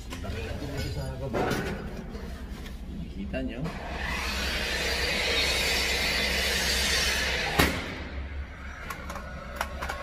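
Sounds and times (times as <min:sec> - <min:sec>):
nail gun shot: 0:07.5 - 0:08.2.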